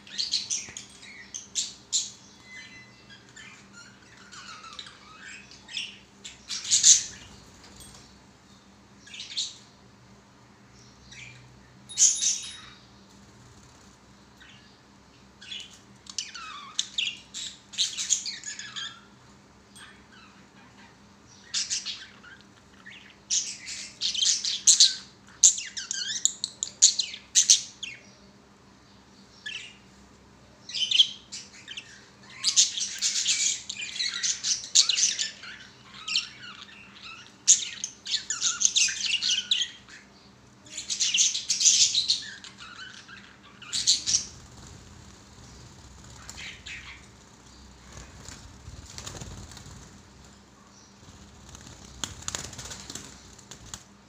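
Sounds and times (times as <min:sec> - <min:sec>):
budgerigars chirping and chattering: 0:00.1 - 0:07.6, 0:15.4 - 0:19.2, 0:30.7 - 0:40.1, 0:40.8 - 0:50.0
wings flapping: 0:44.2 - 0:50.4, 0:51.0 - 0:54.0.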